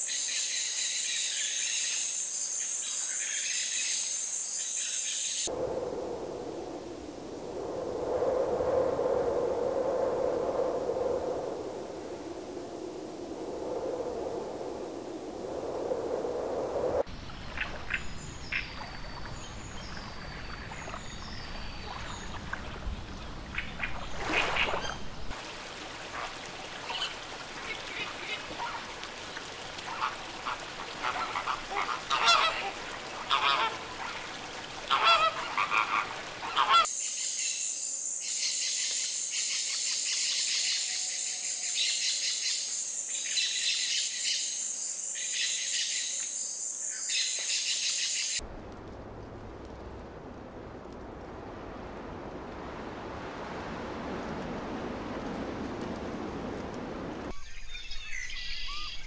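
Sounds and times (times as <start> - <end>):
flamingos honking: 29.7 - 36.9.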